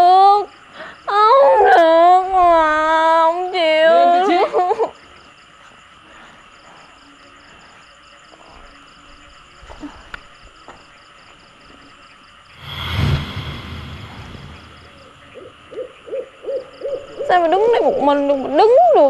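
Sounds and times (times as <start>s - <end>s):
crickets chirping: 0.0s - 19.0s
rushing sound: 12.6s - 15.5s.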